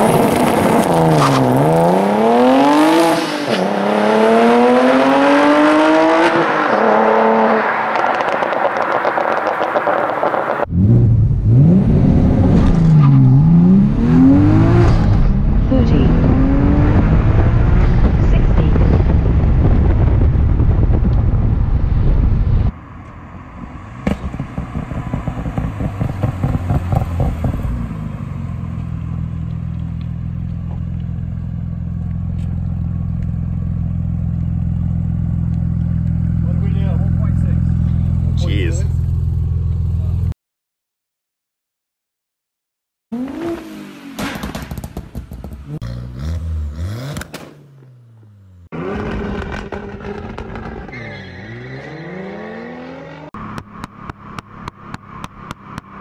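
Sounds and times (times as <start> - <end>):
car engine revving: 0.0 - 20.1, 23.6 - 40.2, 43.1 - 56.0
car engines pulling away: 0.0 - 20.3, 21.0 - 40.3, 43.2 - 56.0
exhaust crackling and popping: 7.9 - 10.7, 16.9 - 23.2, 24.0 - 27.8, 28.7 - 36.8, 44.2 - 46.2, 46.9 - 50.9, 53.4 - 56.0.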